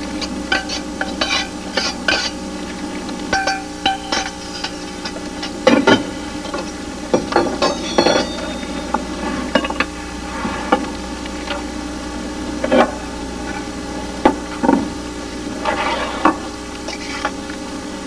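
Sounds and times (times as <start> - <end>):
food sizzling in a pan: 0.0 - 13.8
utensils clinking on pans: 0.2 - 2.4, 3.3 - 8.9.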